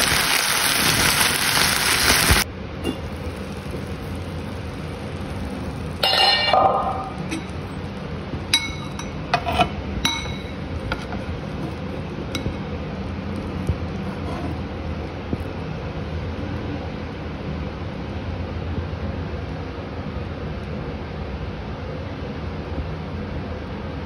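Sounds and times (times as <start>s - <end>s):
steady low hum: 2.4s - 24.0s
metal spoon clinking on pan: 6.0s - 7.8s, 8.5s - 11.1s, 12.3s - 12.6s.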